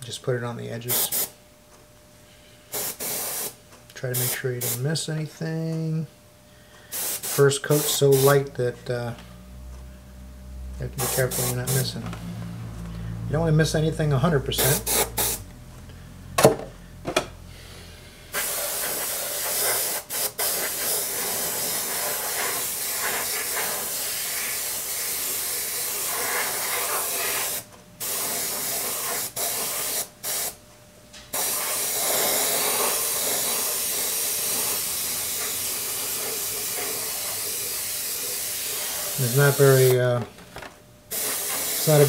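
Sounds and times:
airbrush spraying paint: 0:00.9 - 0:01.3, 0:02.7 - 0:03.6, 0:04.2 - 0:04.8, 0:06.9 - 0:08.4, 0:11.0 - 0:12.0, 0:14.6 - 0:15.4, 0:18.3 - 0:30.6, 0:31.3 - 0:40.0, 0:41.1 - 0:42.0.

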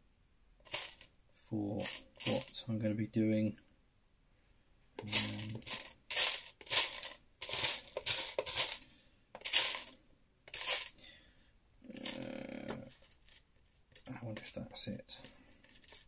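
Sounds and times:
plastic bricks rattling: 0:00.6 - 0:01.1, 0:01.8 - 0:02.6, 0:05.0 - 0:08.8, 0:09.4 - 0:11.0, 0:12.0 - 0:14.6, 0:15.2 - 0:16.0.

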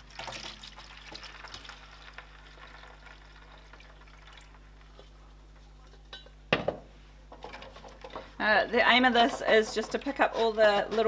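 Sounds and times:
liquid pouring into a pan: 0:00.0 - 0:04.7.

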